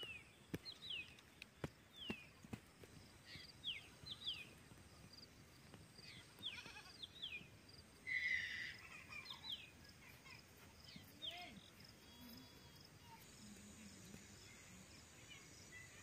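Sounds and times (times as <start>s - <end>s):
birds chirping: 0.0s - 16.0s
animal bleating: 6.1s - 7.1s.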